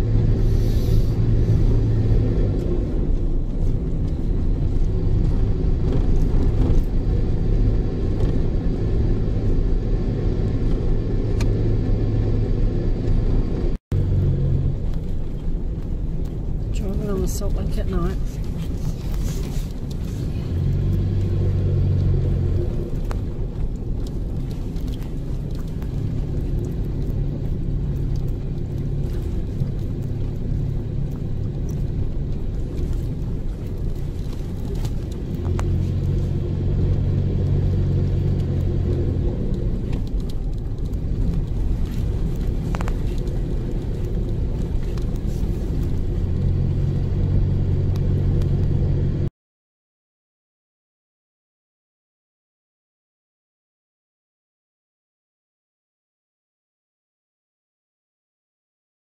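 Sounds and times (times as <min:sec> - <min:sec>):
low drone: 0:00.0 - 0:03.0
engine and tyres rumbling: 0:00.0 - 0:49.3.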